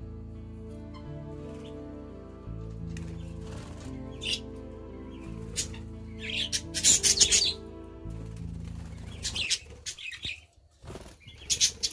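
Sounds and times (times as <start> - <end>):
soft background music: 0.0 - 11.9
budgerigars chirping: 3.2 - 7.8, 8.8 - 10.5, 11.2 - 11.9.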